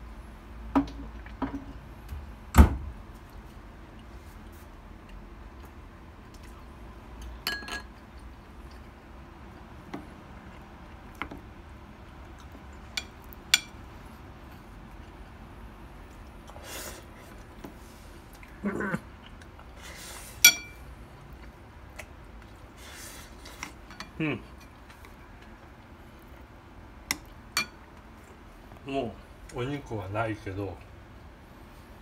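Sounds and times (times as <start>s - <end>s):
spoon clinking on ceramic plate: 7.4s - 7.9s, 20.4s - 20.8s.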